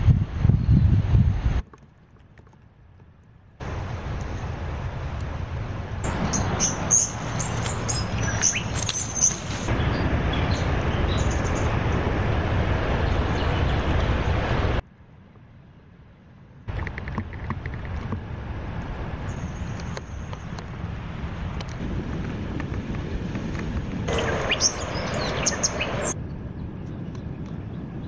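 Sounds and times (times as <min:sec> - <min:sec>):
wind buffeting microphone: 0:00.0 - 0:14.8, 0:16.7 - 0:28.0
small birds chirping: 0:06.0 - 0:11.8, 0:24.1 - 0:28.0.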